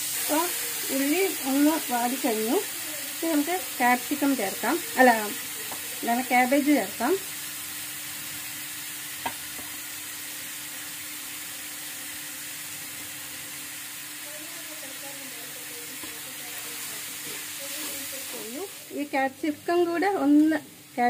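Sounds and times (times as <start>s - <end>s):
vegetables sizzling in hot oil: 0.0s - 21.0s.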